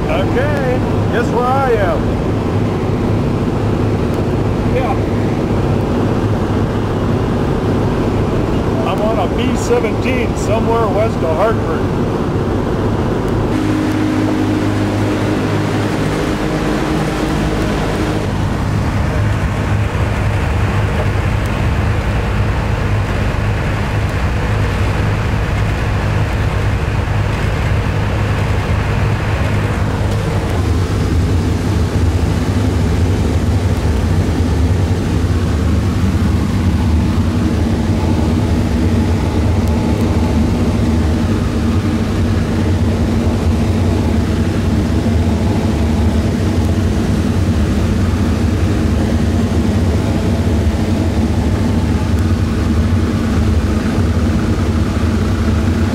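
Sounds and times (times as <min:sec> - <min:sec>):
aircraft radial engines droning: 0:00.0 - 0:55.9.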